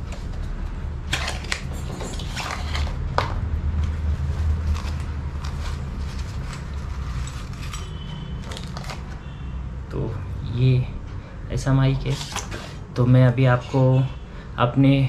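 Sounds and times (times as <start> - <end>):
rustles and clicks of handling: 0.0 - 9.2.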